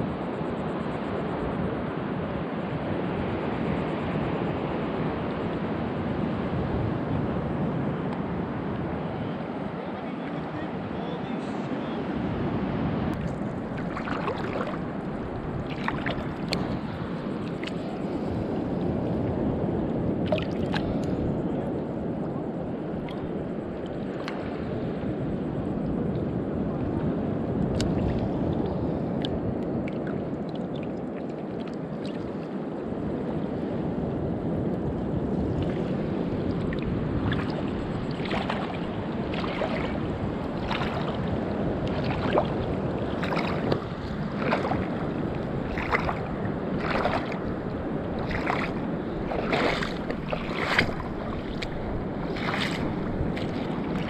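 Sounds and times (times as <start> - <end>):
wind noise on microphone: 0.0 - 54.0
footsteps crunching on sand: 48.3 - 54.0.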